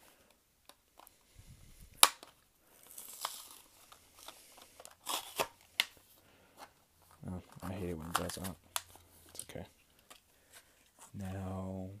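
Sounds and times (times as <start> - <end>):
sharp plastic snaps: 1.9 - 2.4
plastic and card crackling: 1.9 - 11.2
plastic blister pack ripping: 2.0 - 6.0, 7.6 - 9.4.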